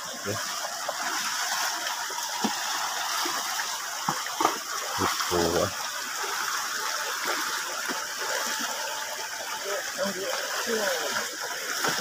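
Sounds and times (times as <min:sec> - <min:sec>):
stream water running: 0:00.0 - 0:12.0.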